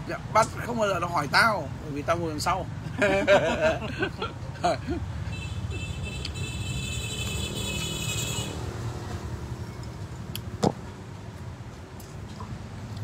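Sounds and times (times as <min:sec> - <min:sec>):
low traffic rumble: 0:00.0 - 0:13.0.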